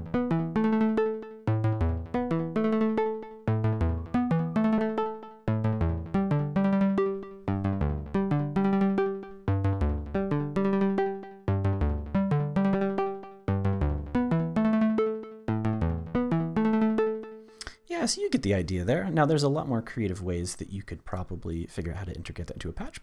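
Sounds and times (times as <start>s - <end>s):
synthesizer bass line: 0.0s - 17.4s
synthesizer plucked notes sequence: 0.0s - 19.7s.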